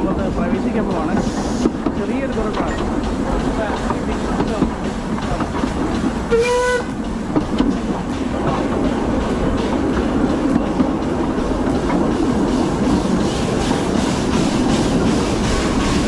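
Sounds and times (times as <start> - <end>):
steam train rumbling: 0.0 - 16.0
wheels clicking over rail joints: 0.0 - 16.0
train whistle blast: 6.3 - 6.9.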